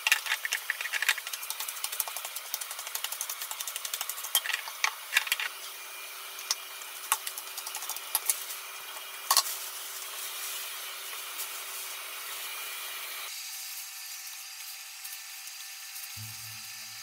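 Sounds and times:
spoon clicks and taps: 0.0s - 5.5s
metal spoon scraping crumbs: 0.0s - 5.6s.

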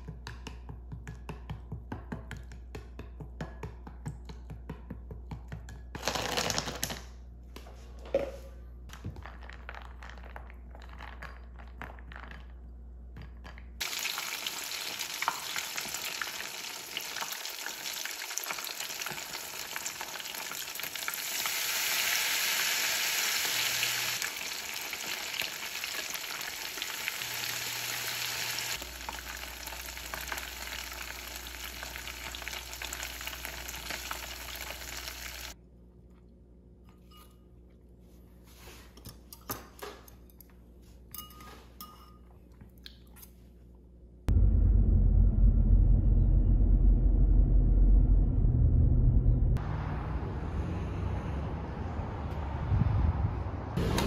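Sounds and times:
shrimp sizzling in hot oil: 13.8s - 35.6s.

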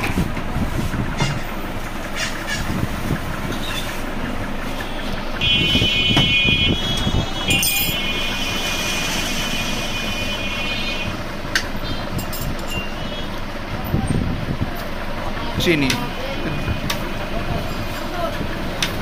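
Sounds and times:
road traffic: 0.0s - 19.0s
high-pitched vehicle horn: 4.7s - 13.4s.

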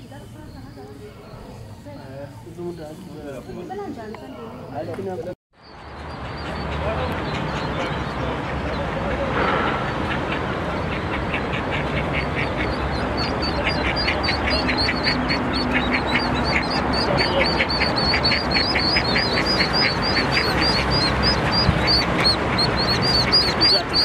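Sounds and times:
road traffic noise: 0.0s - 24.0s
ducklings peeping: 5.7s - 24.0s.

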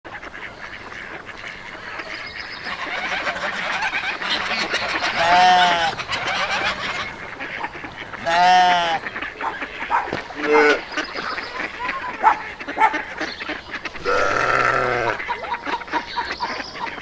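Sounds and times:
animal chatter: 0.1s - 17.0s
loud drawn-out animal call: 2.7s - 10.9s, 13.8s - 15.3s.

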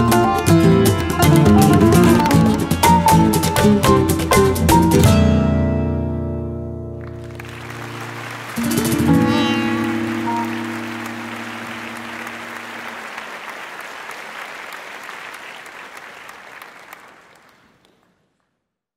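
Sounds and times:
audience applauding: 0.8s - 3.4s, 7.0s - 18.5s.

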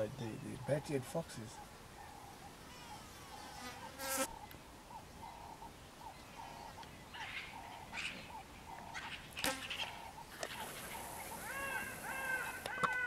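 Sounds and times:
insect buzzing: 2.6s - 4.5s, 9.4s - 12.7s.

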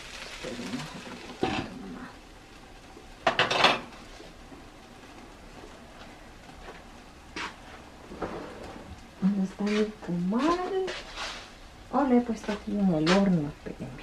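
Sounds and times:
kitchenware clatter: 3.2s - 3.9s.

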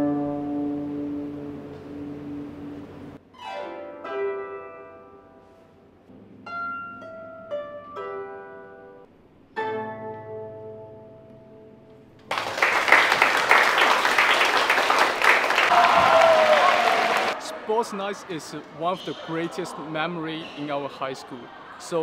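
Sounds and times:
plucked harp: 3.4s - 11.8s
loud applause: 12.3s - 22.0s.

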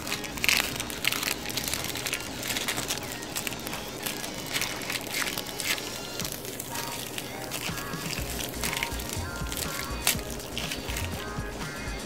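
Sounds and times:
plastic bag crinkling: 0.0s - 12.0s.

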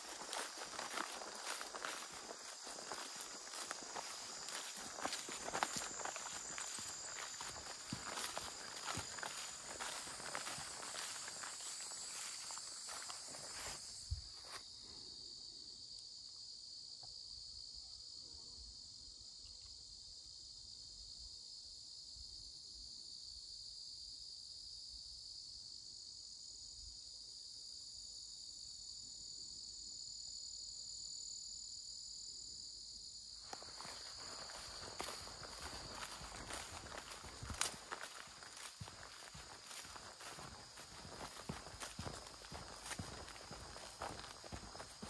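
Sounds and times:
footsteps swishing through grass: 0.0s - 14.6s, 33.5s - 45.0s
crickets chirping: 0.0s - 45.0s.

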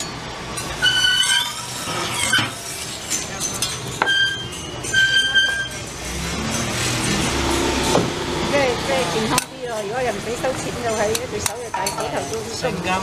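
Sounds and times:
high squeals: 0.0s - 3.3s, 4.0s - 7.9s
metal spatula scraping griddle: 0.6s - 7.9s.

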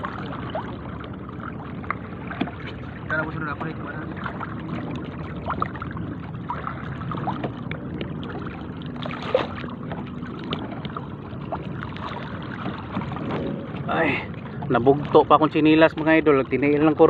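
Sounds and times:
water sloshing and lapping: 0.0s - 17.0s
water splashing: 0.0s - 17.0s.

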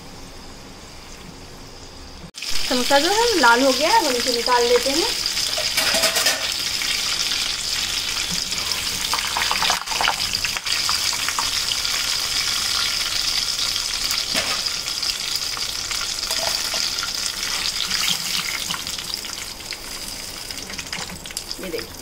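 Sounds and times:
food deep-frying in oil: 2.3s - 22.0s
steel spoon scraping a pan: 5.4s - 6.6s, 8.2s - 9.2s, 16.3s - 18.6s.

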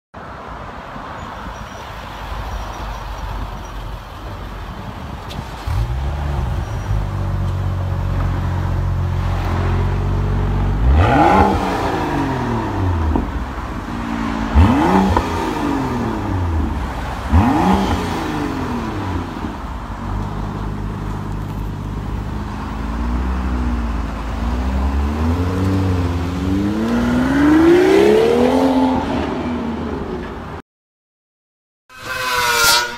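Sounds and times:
car engine starting and revving: 5.3s - 30.3s
car accelerating hard: 10.8s - 13.2s, 14.1s - 19.3s.

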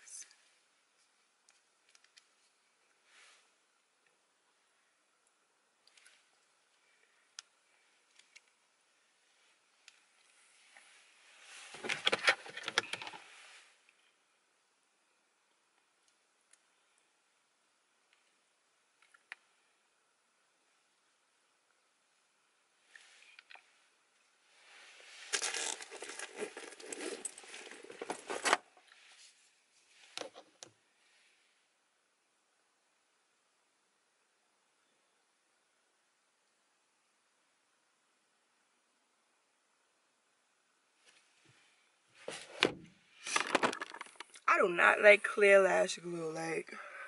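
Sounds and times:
rustling and crinkling: 9.2s - 14.0s, 24.4s - 31.2s, 41.0s - 44.5s
phone handling rustle and crackle: 11.6s - 13.3s, 25.2s - 28.7s, 43.2s - 44.4s.

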